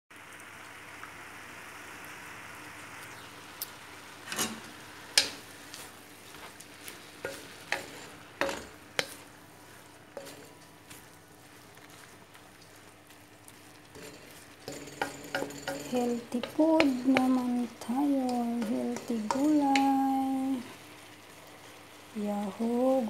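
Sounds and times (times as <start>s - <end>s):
vegetables sizzling in a pan: 0.2s - 23.0s
wooden spatula scraping a pan: 4.3s - 21.9s.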